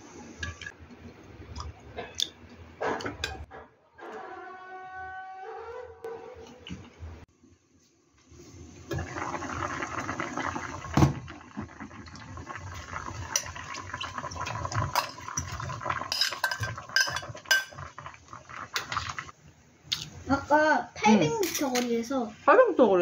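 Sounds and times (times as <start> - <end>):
stew bubbling at a boil: 8.8 - 19.4.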